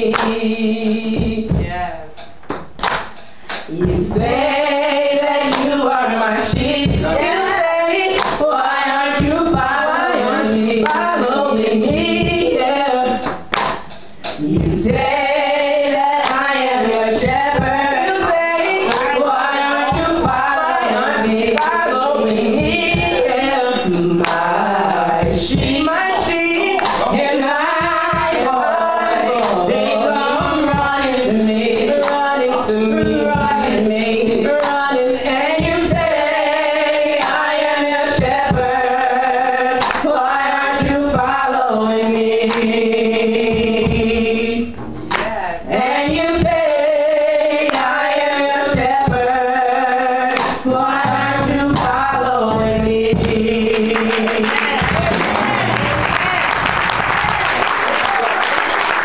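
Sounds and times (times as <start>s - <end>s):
woman singing: 3.7s - 13.4s, 14.5s - 55.1s.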